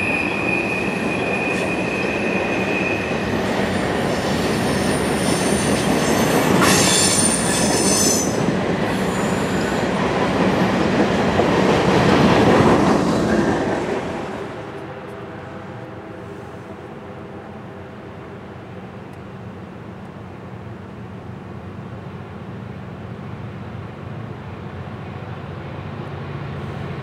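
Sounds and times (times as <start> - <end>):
high-pitched wheel squeal: 0.0 - 3.1, 4.8 - 8.4
train wheels rumbling on rail: 0.0 - 27.0.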